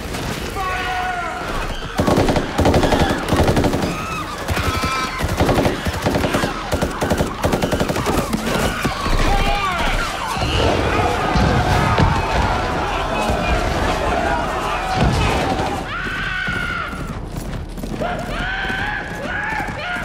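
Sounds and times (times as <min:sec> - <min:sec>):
automatic rifle fire: 0:02.0 - 0:08.7.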